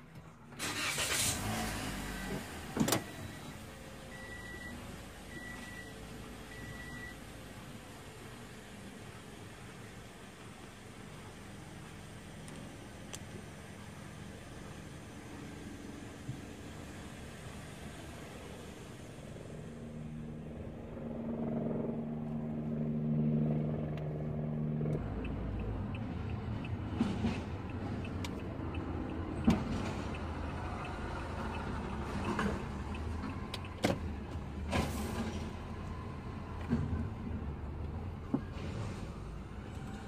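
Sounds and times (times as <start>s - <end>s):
car engine inside cabin: 0.0s - 40.0s
low road rumble: 0.0s - 40.0s.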